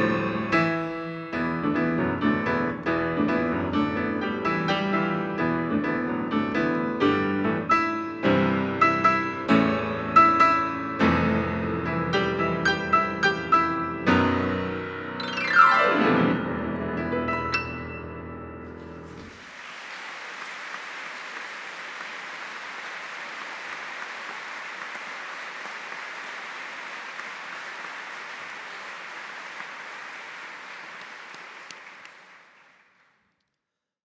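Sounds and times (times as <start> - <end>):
audience applauding: 19.1 - 33.4.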